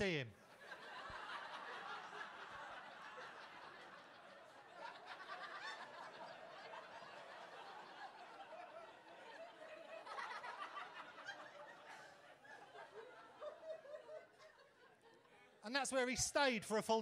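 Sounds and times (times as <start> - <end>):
audience laughing: 0.0 - 15.6.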